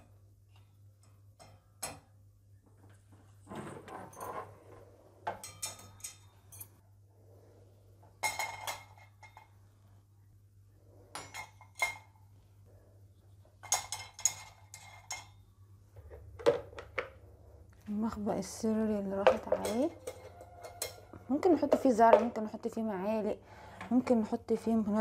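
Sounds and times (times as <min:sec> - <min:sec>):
metal utensils clinking on rack: 0:05.3 - 0:06.8, 0:13.6 - 0:15.4, 0:19.3 - 0:21.9.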